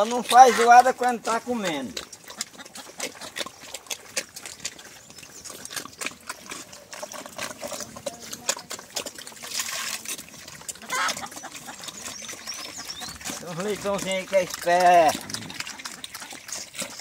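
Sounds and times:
pigs slurping and chewing feed: 0.0s - 17.0s.

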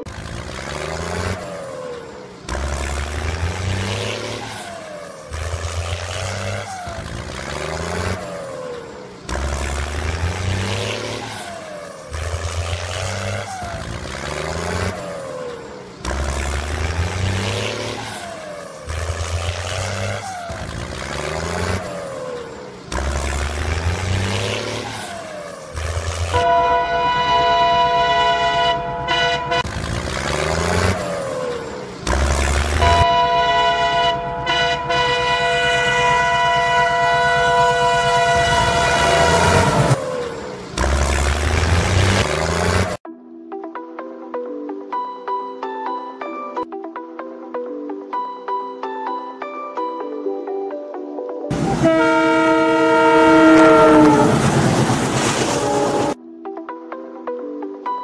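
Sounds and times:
looped engine revving effect: 0.0s - 26.4s, 29.6s - 33.1s, 35.7s - 43.0s, 51.5s - 56.2s
train horn blast: 26.3s - 29.7s, 32.7s - 40.0s, 51.5s - 56.2s.

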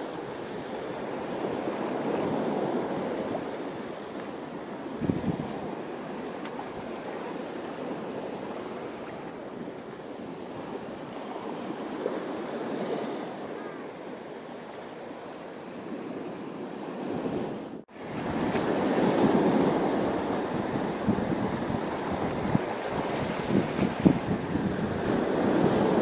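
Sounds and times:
sea water washing and sloshing: 0.1s - 26.0s.

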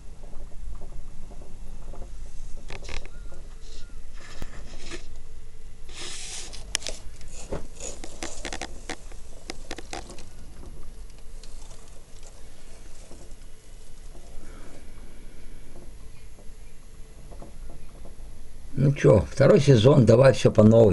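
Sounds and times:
sharp ticks and crackles: 6.7s - 14.4s.

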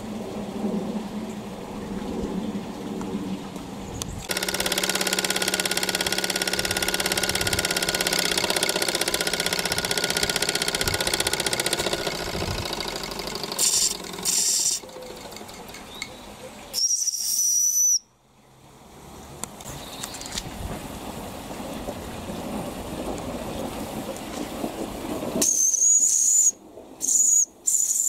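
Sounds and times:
steam hissing: 12.4s - 14.8s.

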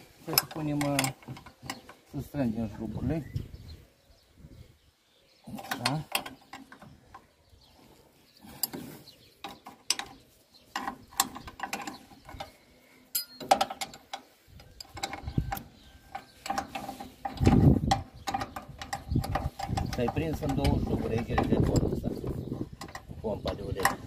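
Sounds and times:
wrench metal clicks and clanks: 0.2s - 2.0s, 5.5s - 7.3s, 9.4s - 24.0s.

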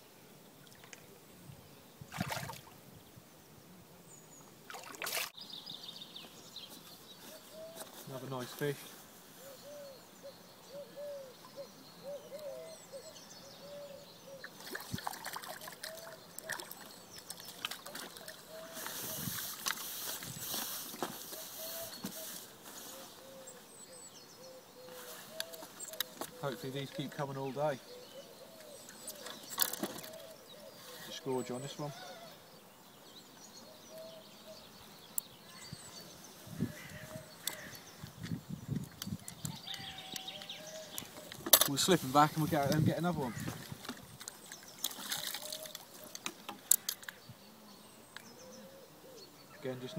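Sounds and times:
birdsong chirps: 0.0s - 49.9s
fish splashing and thrashing in water: 2.1s - 2.7s, 4.7s - 5.4s, 14.6s - 18.4s, 43.6s - 46.1s
short bird calls: 17.5s - 32.5s, 33.6s - 38.2s, 39.3s - 42.5s.

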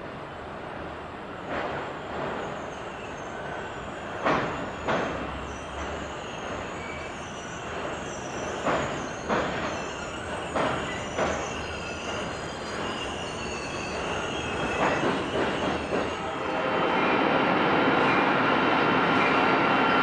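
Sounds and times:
train rumbling on bridge: 0.0s - 20.0s
high wheel squeal: 2.4s - 16.4s
train wheels clacking over rail joint: 4.1s - 16.3s.

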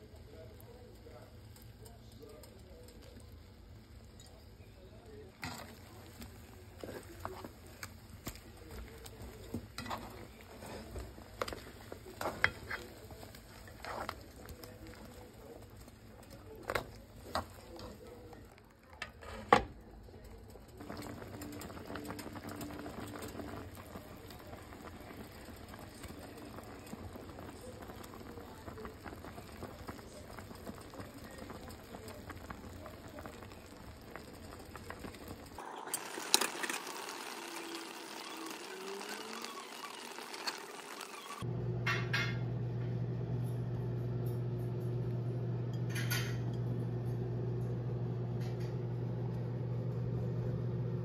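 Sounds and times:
spatula scraping a pan: 9.2s - 14.4s
meat sizzling in a frying pan: 27.6s - 41.4s.

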